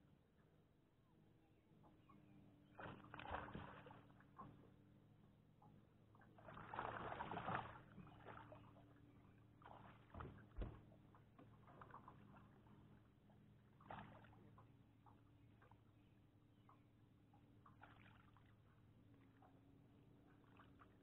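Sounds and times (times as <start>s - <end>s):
faint steady hum: 0.0s - 21.0s
water lapping against boat: 1.9s - 21.0s
thump: 10.2s - 10.8s.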